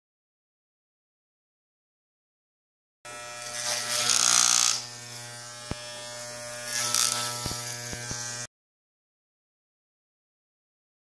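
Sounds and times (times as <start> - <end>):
electric clippers buzzing: 3.1 - 8.5.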